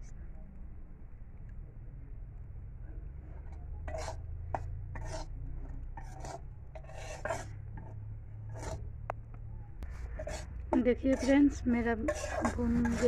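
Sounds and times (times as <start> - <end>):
spatula scraping steel pan: 3.4 - 8.9, 9.9 - 13.0.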